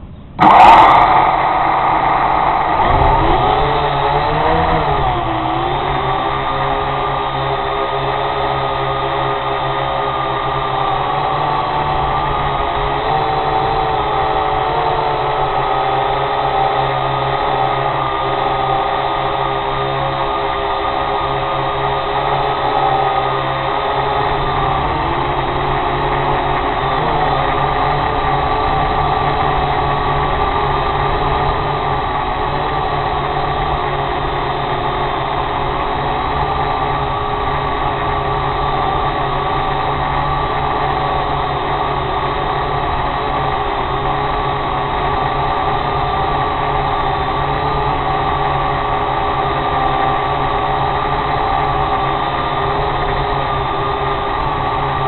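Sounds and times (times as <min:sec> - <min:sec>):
drone propellers whining: 0:00.0 - 0:55.0.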